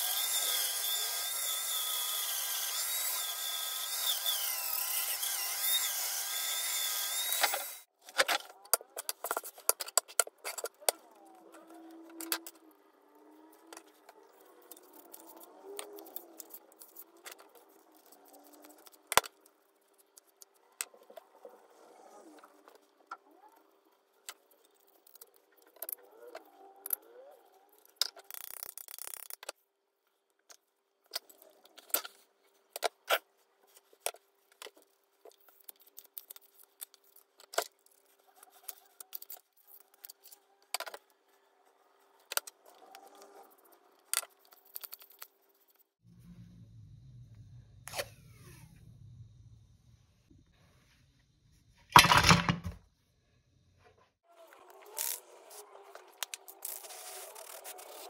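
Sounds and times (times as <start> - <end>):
faint steady hum: 46.1 - 51.9.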